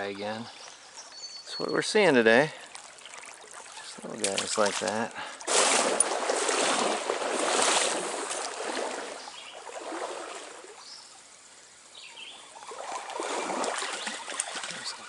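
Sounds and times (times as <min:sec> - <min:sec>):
faint bird chirps: 0:00.0 - 0:01.9
stream water rushing: 0:00.0 - 0:15.0.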